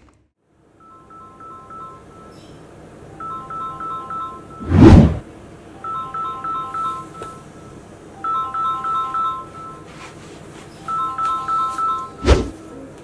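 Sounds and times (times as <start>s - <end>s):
alarm ringtone beeping melody: 0.8s - 2.4s, 3.2s - 4.7s, 5.8s - 7.6s, 8.2s - 9.9s, 10.9s - 12.3s
loud whoosh: 4.6s - 5.2s, 12.2s - 12.6s.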